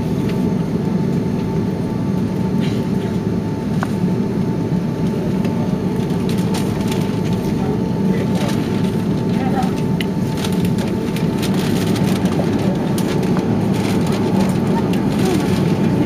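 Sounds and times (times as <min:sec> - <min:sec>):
jet engine cabin rumble and whine: 0:00.0 - 0:16.0.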